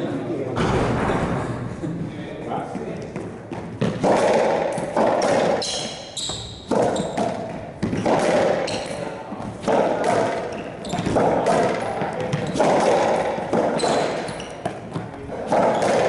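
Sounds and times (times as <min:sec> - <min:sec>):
racquetball hitting racquets and walls: 0:00.5 - 0:16.0
sneaker squeaks on court floor: 0:05.2 - 0:09.6, 0:10.2 - 0:16.0.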